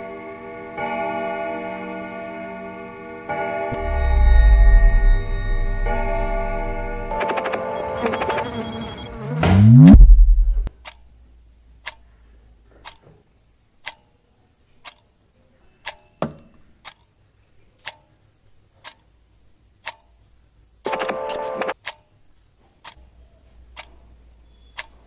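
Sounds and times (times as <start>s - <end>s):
low thump: 3.8s - 7.1s, 9.4s - 10.7s
deep boom: 3.8s - 7.2s, 9.4s - 10.7s
clock ticking: 7.1s - 9.1s.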